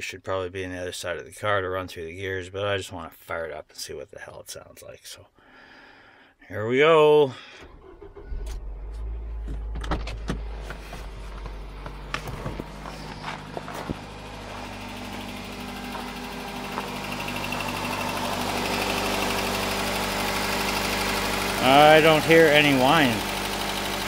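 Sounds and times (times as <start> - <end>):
car engine idling: 7.5 - 24.0.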